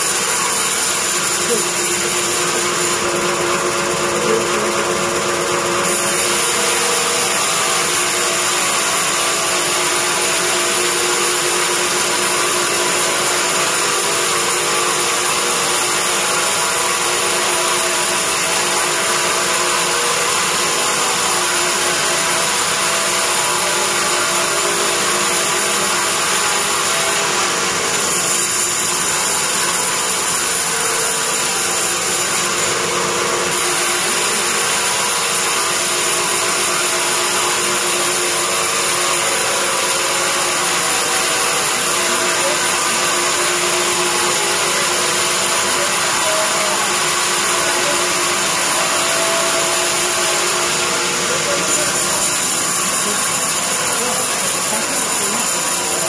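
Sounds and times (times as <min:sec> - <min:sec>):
band saw ripping through wood: 0:20.2 - 0:56.0.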